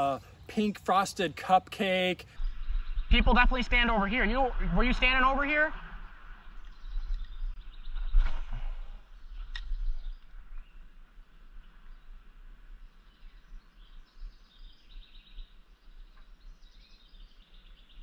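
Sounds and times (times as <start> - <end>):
small birds chirping: 0.0 - 18.0
steady low rumble: 2.2 - 11.3.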